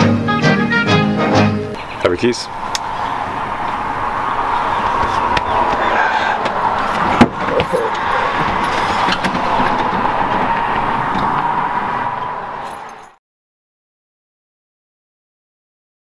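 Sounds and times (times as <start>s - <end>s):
outdoor background noise: 1.8s - 13.2s
keys jingling: 6.9s - 9.4s, 12.6s - 13.2s.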